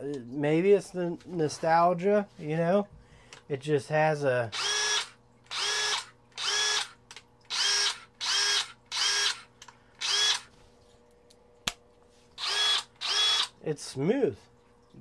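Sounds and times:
cordless drill spinning up: 0:04.5 - 0:10.6, 0:12.4 - 0:13.5.

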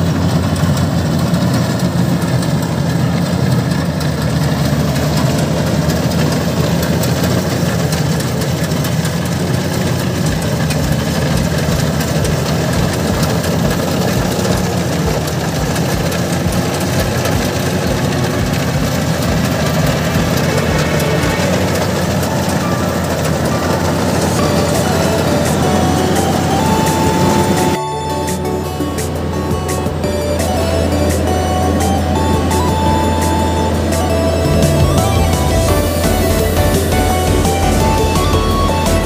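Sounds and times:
combine harvester engine running: 0:00.0 - 0:39.0.

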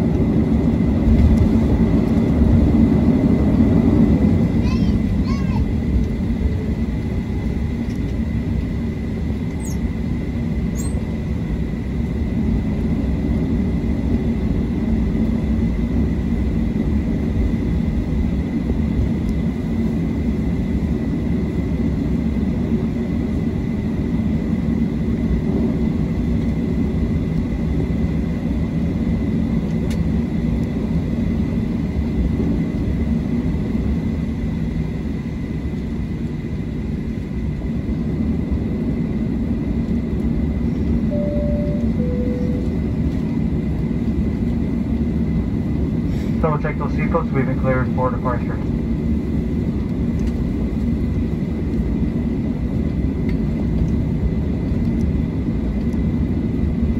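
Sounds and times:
jet engine cabin rumble: 0:00.0 - 0:56.9
faint steady whine: 0:35.1 - 0:52.2.

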